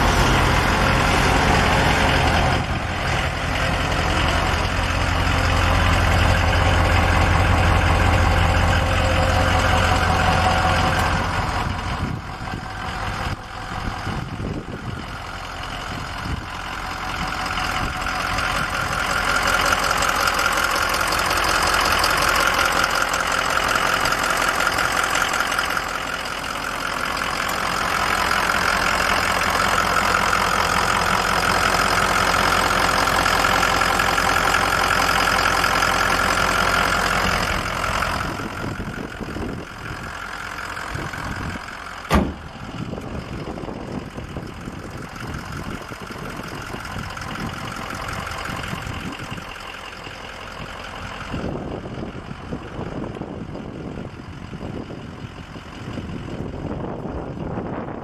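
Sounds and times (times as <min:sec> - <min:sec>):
diesel engine idling: 0:00.0 - 0:58.0
sharp knock: 0:42.1 - 0:42.4.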